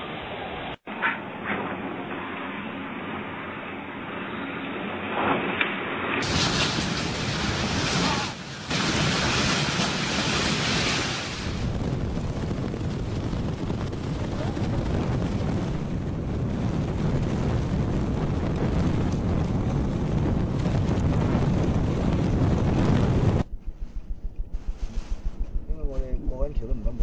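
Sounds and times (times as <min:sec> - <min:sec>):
driving rain hiss: 0:06.2 - 0:11.7
wind buffeting microphone: 0:06.2 - 0:27.0.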